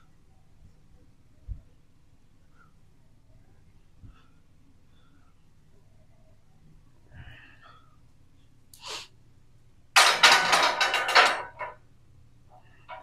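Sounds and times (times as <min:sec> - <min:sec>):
barbell clattering on metal hooks: 0:10.0 - 0:11.8.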